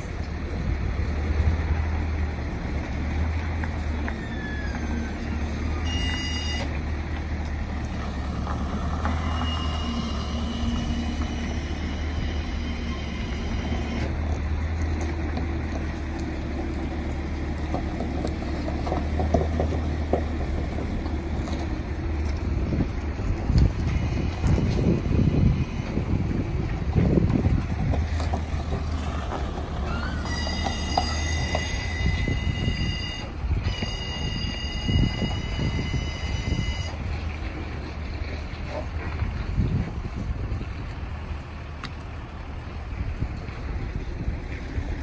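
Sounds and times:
heavy truck rumbling past: 0:00.0 - 0:45.0
brief high-pitched tone: 0:05.8 - 0:06.7
wind buffeting microphone: 0:07.0 - 0:45.0.

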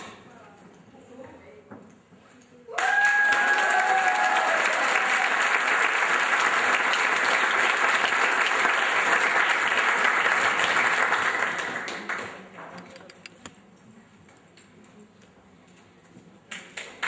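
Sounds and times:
audience applause: 0:02.8 - 0:12.4.

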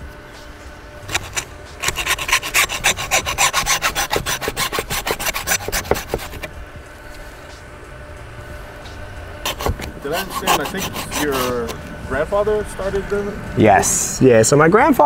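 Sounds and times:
hand saw cutting bone: 0:01.1 - 0:06.5, 0:09.5 - 0:11.8.

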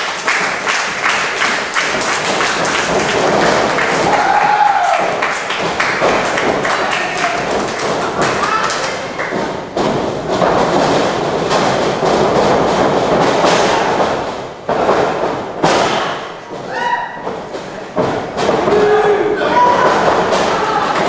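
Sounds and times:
thuds on wrestling ring: 0:00.2 - 0:21.0
crowd shouting and cheering: 0:01.7 - 0:09.4, 0:16.6 - 0:17.3, 0:18.5 - 0:21.0.

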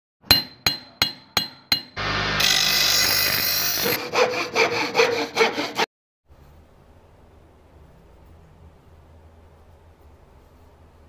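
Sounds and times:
hand-sawing strokes: 0:02.0 - 0:05.9
power tool grinding: 0:02.0 - 0:05.9.

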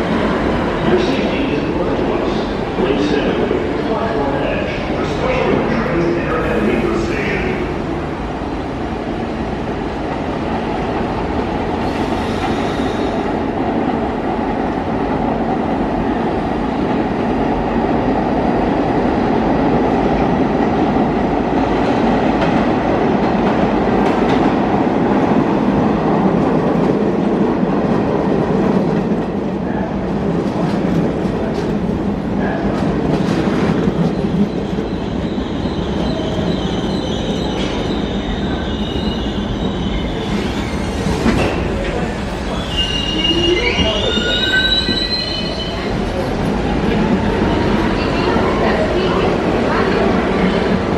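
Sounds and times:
subway train wheels rumbling: 0:00.0 - 0:50.9
high wheel squeals: 0:42.5 - 0:45.9.

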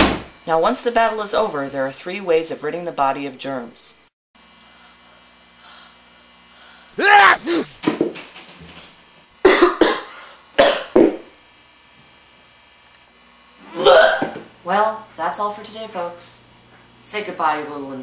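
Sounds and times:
boy coughing: 0:07.0 - 0:07.8, 0:09.4 - 0:10.9, 0:13.8 - 0:14.4.

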